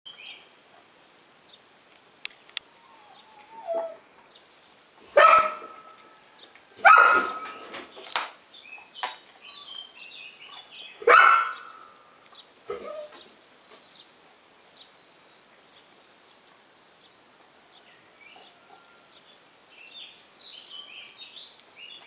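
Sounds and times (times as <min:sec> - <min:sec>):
dog barking: 0:05.2 - 0:05.8, 0:06.8 - 0:07.5, 0:11.0 - 0:11.7.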